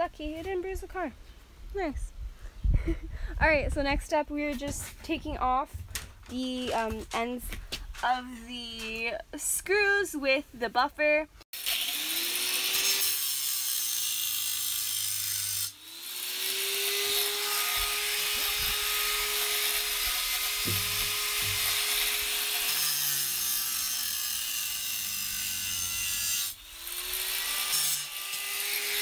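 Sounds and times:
angle grinder grinding metal: 11.6 - 29.0.

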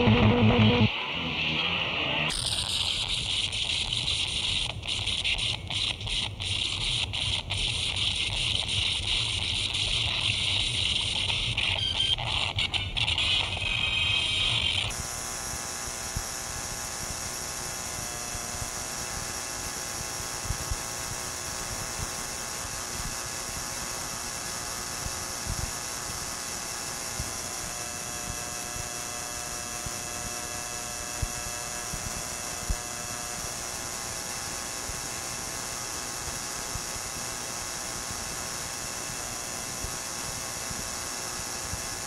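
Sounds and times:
dense tape hiss: 0.0 - 42.0.

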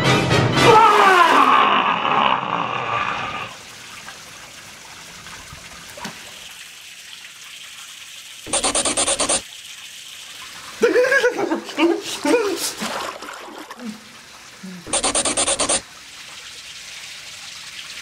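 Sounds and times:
fountain water trickling into pond: 3.4 - 14.9, 15.8 - 18.0.

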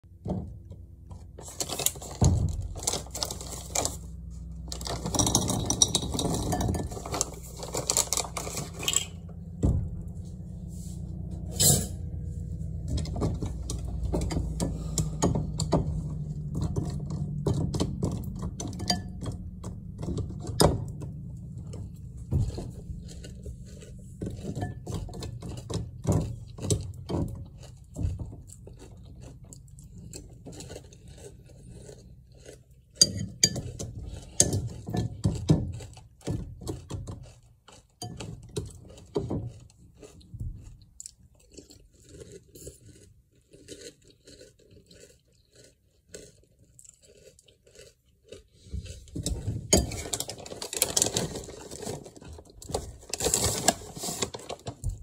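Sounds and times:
popcorn rattling into a bowl: 1.4 - 9.3
spoon clinking and scraping bowl: 5.0 - 7.4, 8.8 - 9.2, 11.5 - 12.1, 18.4 - 19.5, 24.2 - 25.5, 33.0 - 35.1, 38.0 - 38.7, 49.7 - 50.3
eating sounds: 21.0 - 50.4.

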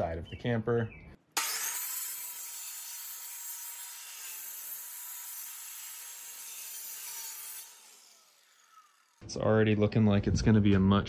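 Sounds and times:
saw blade cutting metal: 1.4 - 9.2.

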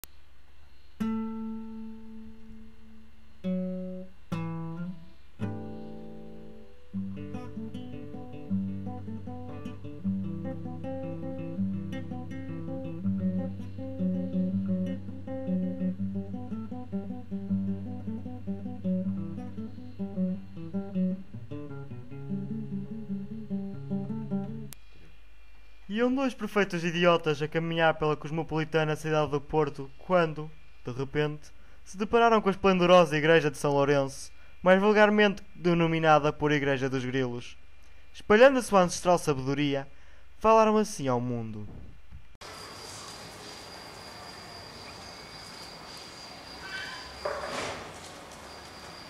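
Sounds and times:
acoustic guitar music: 1.0 - 24.8.

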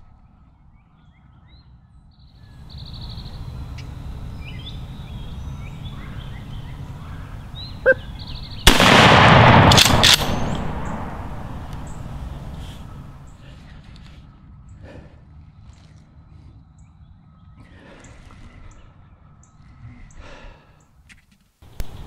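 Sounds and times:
small birds chirping: 0.0 - 8.8, 10.4 - 22.0
shotgun shot: 8.6 - 11.9.

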